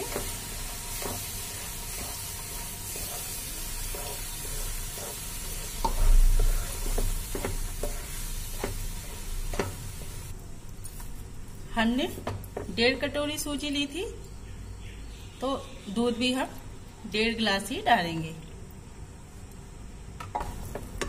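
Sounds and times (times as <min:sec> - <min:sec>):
milk sizzling in a hot pan: 0:00.0 - 0:10.3
wooden spatula scraping a pan: 0:00.0 - 0:10.3.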